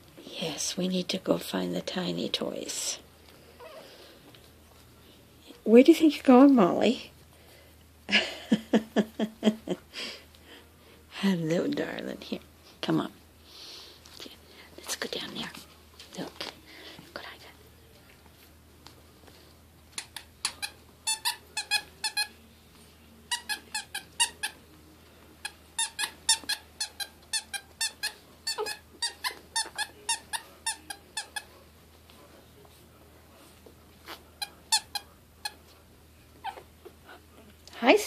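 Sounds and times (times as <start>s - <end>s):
squeaky dog toy squeaking: 20.0s - 22.3s, 23.3s - 24.6s, 25.8s - 31.5s, 34.4s - 35.1s.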